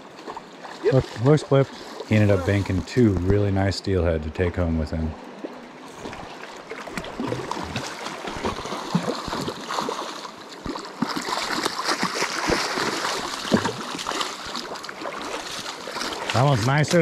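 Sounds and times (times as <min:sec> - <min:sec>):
river water lapping over sand: 0:00.0 - 0:17.0
fish thrashing in shallow water: 0:05.8 - 0:17.0.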